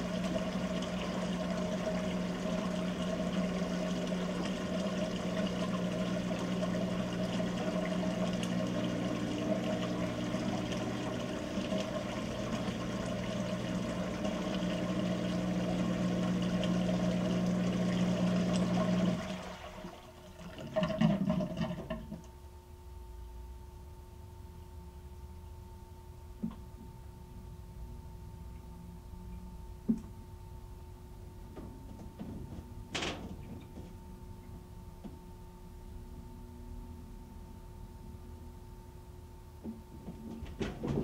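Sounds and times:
washing machine water rushing: 0.0s - 22.2s, 31.6s - 34.0s, 39.7s - 41.0s
electric pump hum: 0.0s - 41.0s.

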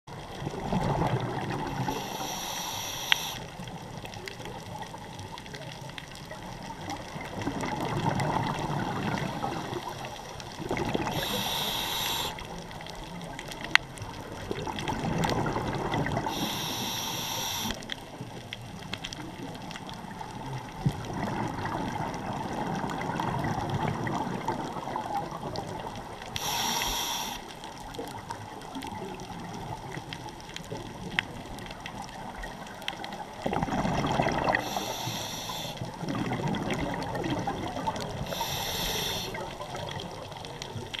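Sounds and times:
bubbling exhaled air: 0.5s - 3.6s, 7.2s - 12.8s, 14.1s - 17.9s, 20.7s - 27.5s, 33.4s - 40.4s
regulator hissing inhalations: 1.8s - 3.5s, 11.1s - 12.5s, 16.3s - 17.8s, 26.4s - 27.5s, 34.6s - 35.9s, 38.2s - 39.5s.

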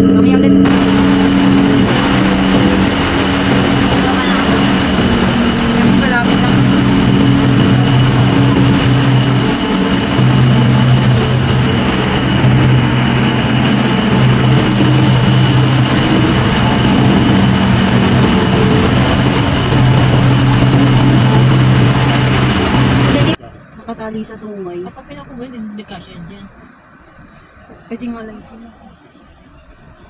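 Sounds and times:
ship diesel engines droning: 0.0s - 30.0s.

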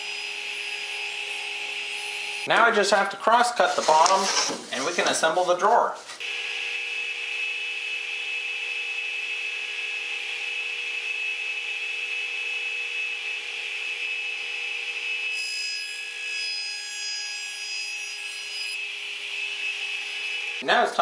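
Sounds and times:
saw cutting plywood: 3.5s - 5.7s, 15.2s - 20.6s.

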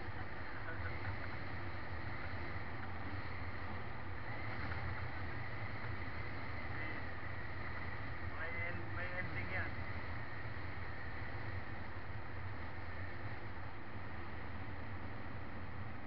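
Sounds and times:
engine and tyre hum: 0.0s - 16.0s
wind rushing over microphone: 0.0s - 16.0s.

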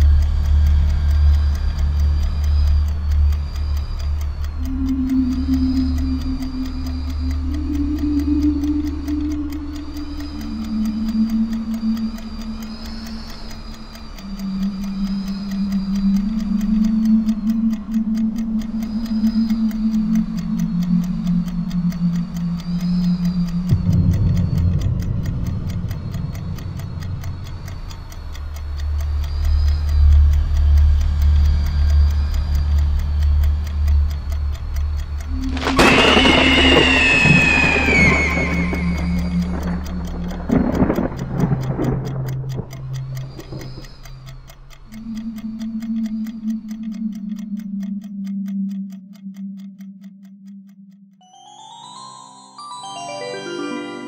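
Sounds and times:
clock ticking: 0.0s - 52.1s
low eerie drone: 0.0s - 54.0s.

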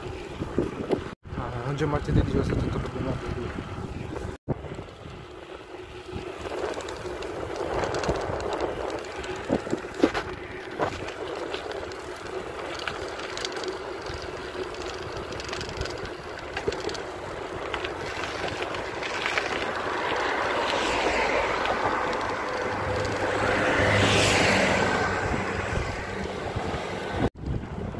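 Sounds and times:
wind on microphone: 0.0s - 12.0s, 14.0s - 27.9s
bicycle rattles and knocks: 0.0s - 27.9s
bicycle tyre and road rumble: 0.0s - 27.9s
passing motor vehicle: 2.4s - 27.9s.

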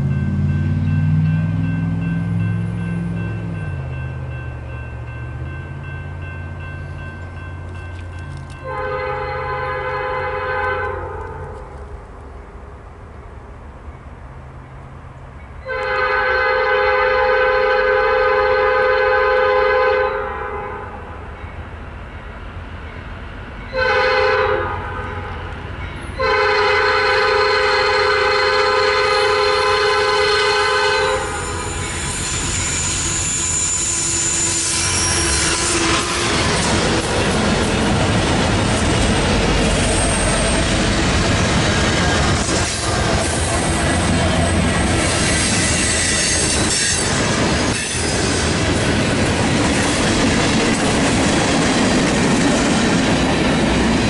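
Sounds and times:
locomotive air horn blasts: 8.6s - 11.7s, 15.6s - 21.0s, 23.7s - 25.5s, 26.2s - 36.7s
thin high tone: 31.1s - 36.7s
train wheels clattering over rails: 34.1s - 54.0s.

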